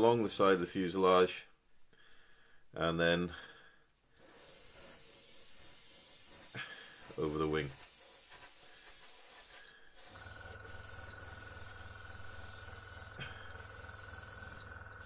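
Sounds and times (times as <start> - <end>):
airbrush hissing: 0.0 - 1.0, 4.2 - 15.0.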